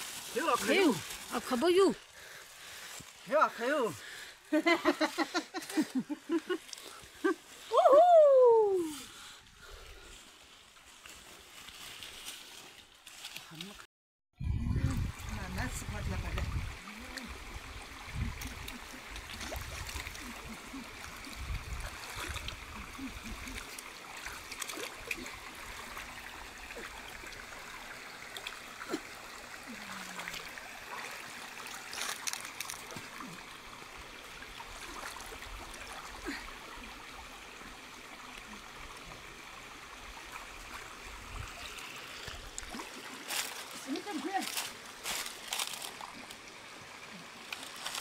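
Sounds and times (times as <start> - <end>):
stream trickling over stones: 0.0 - 7.8, 8.7 - 13.9, 14.7 - 48.0
small water splashes: 15.1 - 48.0.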